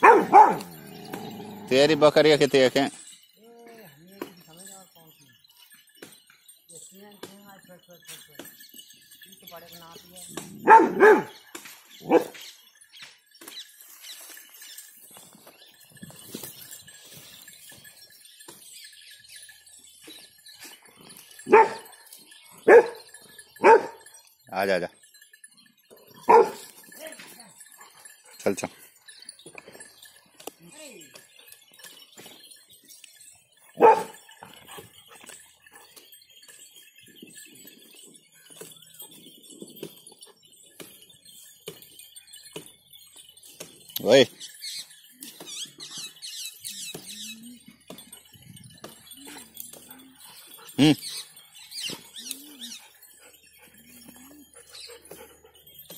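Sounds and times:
dog barking: 0.0 - 0.8, 10.6 - 11.4, 12.1 - 12.4, 21.5 - 21.9, 22.6 - 23.0, 23.6 - 24.0, 26.2 - 26.7, 33.8 - 34.3
goat bells tinkling: 0.0 - 55.9.

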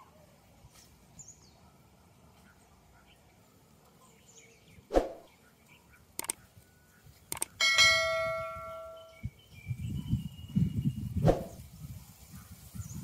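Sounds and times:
quick mouse clicks: 6.2 - 6.4, 7.3 - 7.5
bright bell ding: 7.6 - 9.2.

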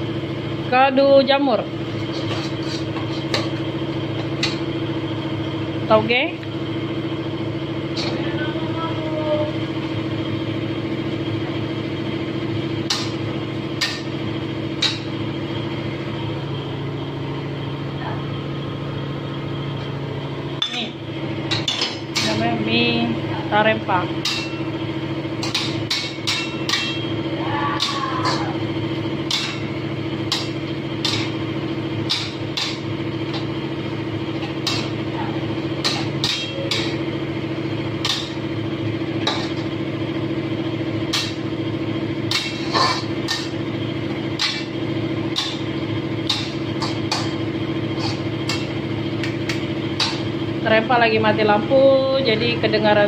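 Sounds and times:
generator humming: 0.0 - 53.0
metal spatula clanking on wok: 24.2 - 24.7, 25.4 - 27.2, 27.8 - 28.5, 30.3 - 31.4, 34.4 - 35.0, 35.8 - 37.0, 39.2 - 39.7.

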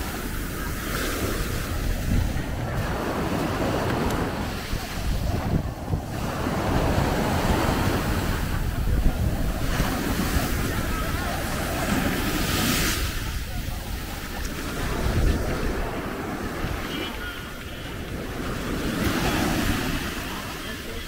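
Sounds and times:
waves washing onto beach: 0.0 - 21.0
wind buffeting microphone: 0.0 - 21.0.

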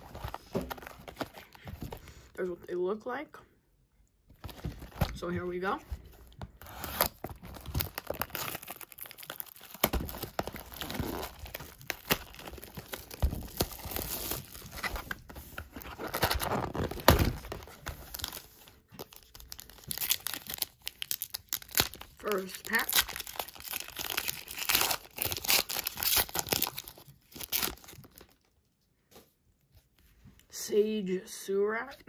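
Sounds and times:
shrink wrap crinkling: 4.4 - 28.6
foil pack crinkling: 6.8 - 28.5.

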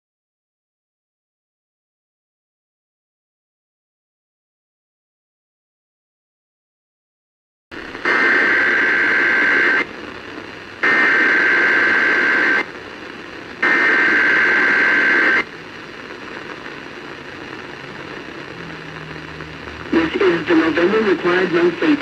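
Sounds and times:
radio hiss: 7.8 - 22.0.

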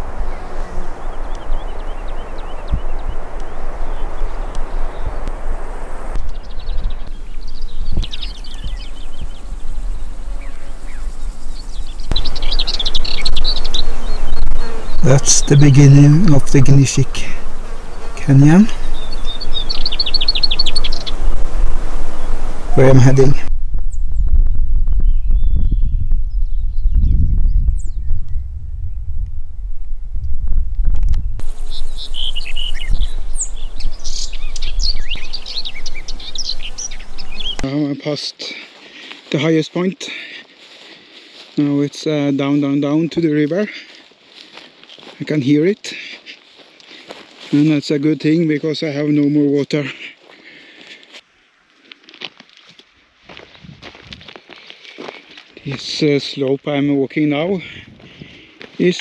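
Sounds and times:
small birds chirping: 0.0 - 24.3, 24.9 - 29.0, 31.2 - 52.0, 54.4 - 59.0
wind rumble on microphone: 0.0 - 37.6, 53.3 - 54.4.

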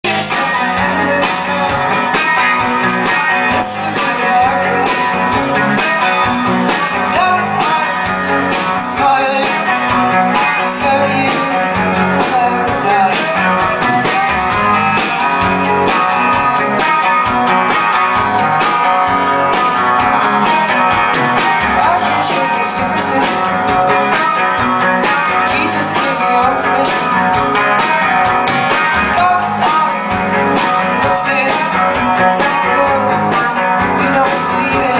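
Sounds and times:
woman singing: 0.0 - 2.3, 3.4 - 5.4, 6.7 - 13.4, 21.8 - 23.7, 25.4 - 27.2, 29.1 - 30.1, 31.0 - 34.9
live rock band playing: 0.0 - 34.9.

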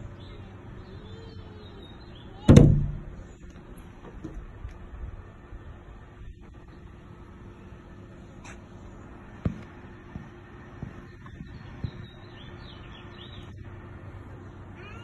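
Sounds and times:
faint bird chirps: 0.0 - 2.5
low background hum: 0.0 - 15.0
dull knocks: 2.5 - 3.2.

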